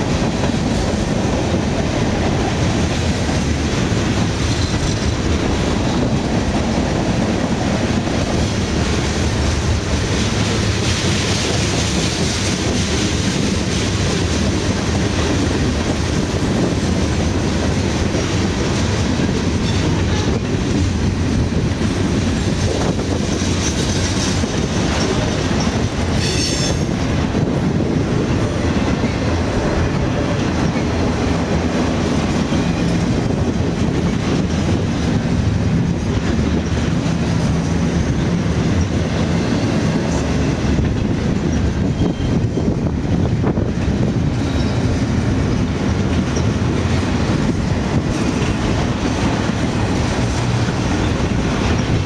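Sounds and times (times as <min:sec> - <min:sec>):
steel wheels on rail: 0:00.0 - 0:52.0
high-pitched wheel squeal: 0:26.2 - 0:26.9.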